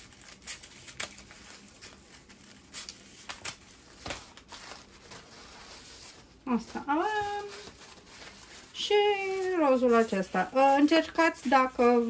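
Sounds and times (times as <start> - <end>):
scissors snipping paper: 0.0 - 2.0
paper rustling and crinkling: 0.0 - 12.0.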